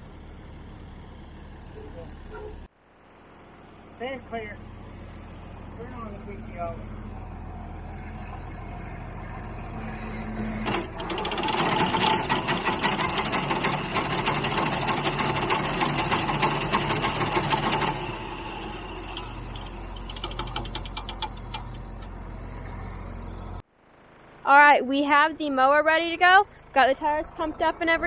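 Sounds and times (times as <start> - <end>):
tractor engine idling: 0.0 - 28.0
mower mechanical clatter: 9.8 - 23.6.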